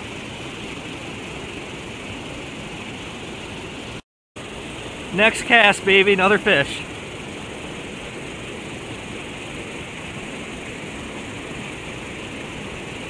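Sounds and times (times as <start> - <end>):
river water over dam spillway: 0.0 - 13.0.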